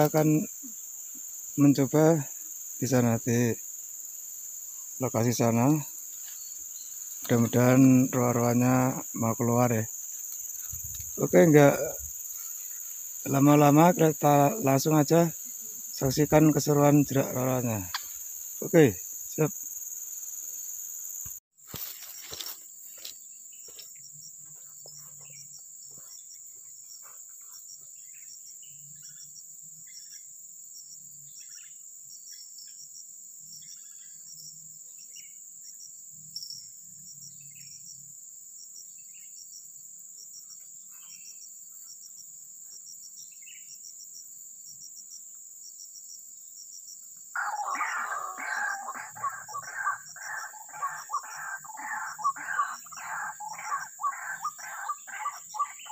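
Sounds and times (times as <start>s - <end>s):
high insect buzzing: 0.0s - 29.0s
bird chirps: 4.7s - 19.5s, 47.4s - 55.9s
loud bird call: 47.4s - 55.9s
pulsing chirp: 47.4s - 55.9s.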